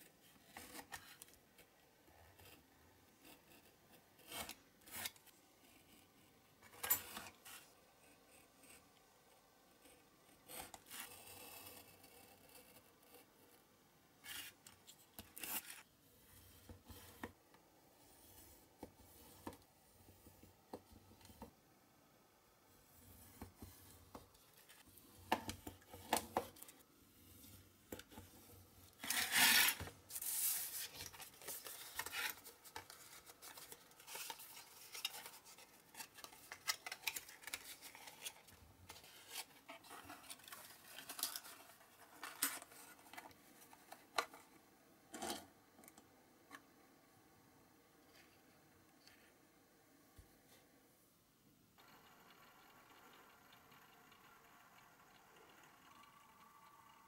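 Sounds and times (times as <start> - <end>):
card being creased and folded: 14.2 - 15.9, 29.0 - 44.4.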